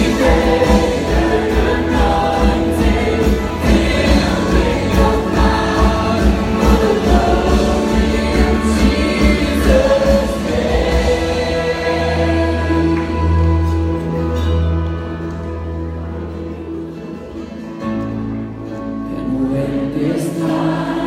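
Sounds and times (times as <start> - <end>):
band playing a low beat: 0.0 - 14.7
congregation singing: 0.0 - 14.8, 19.1 - 21.0.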